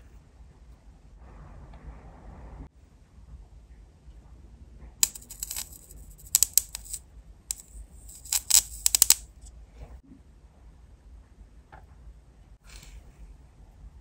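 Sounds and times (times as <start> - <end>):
metal tweezers clicking: 5.0 - 9.2.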